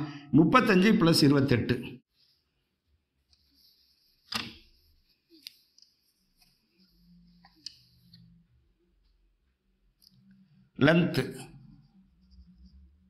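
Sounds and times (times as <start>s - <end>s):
cloth rubbing on whiteboard: 2.1s - 8.3s.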